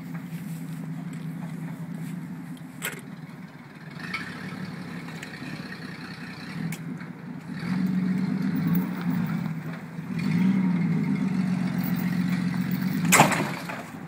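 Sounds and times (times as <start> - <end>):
car engine running: 0.0 - 14.0.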